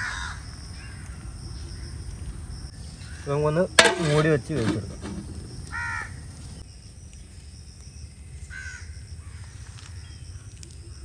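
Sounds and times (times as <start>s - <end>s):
crow cawing: 0.0s - 1.0s, 5.7s - 6.2s, 8.5s - 9.5s.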